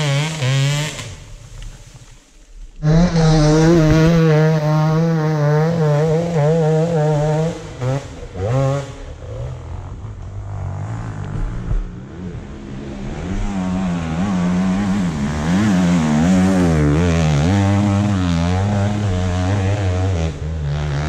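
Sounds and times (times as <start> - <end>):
dirt bike engine revving: 0.0 - 2.2, 2.8 - 21.0.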